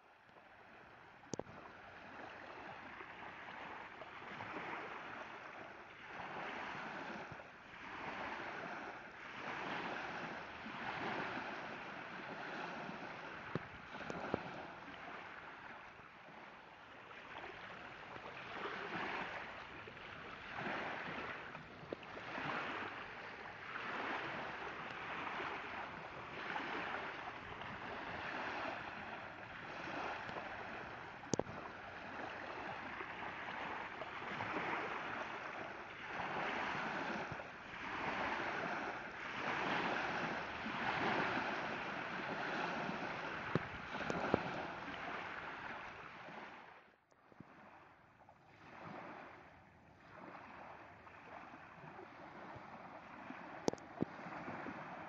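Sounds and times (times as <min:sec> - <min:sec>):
water lapping and splashing: 0:00.0 - 0:55.0.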